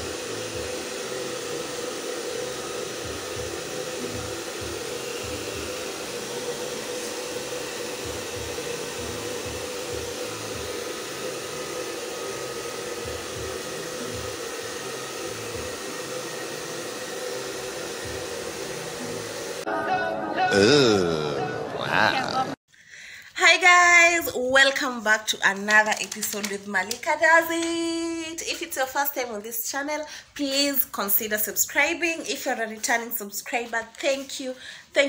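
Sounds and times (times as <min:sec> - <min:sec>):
hair dryer running: 0:00.0 - 0:19.7, 0:25.7 - 0:28.2.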